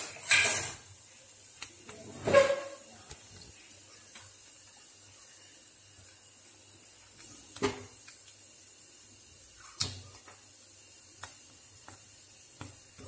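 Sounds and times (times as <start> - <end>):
ghee hissing in pan: 0.0 - 13.0.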